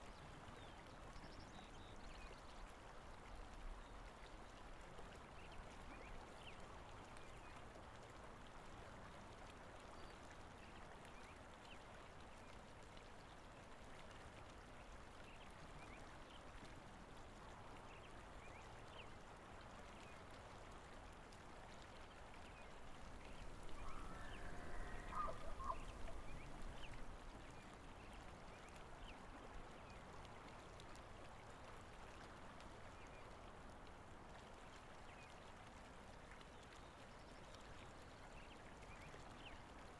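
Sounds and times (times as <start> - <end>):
flowing water rushing: 0.1 - 39.9
birds calling: 23.3 - 27.0.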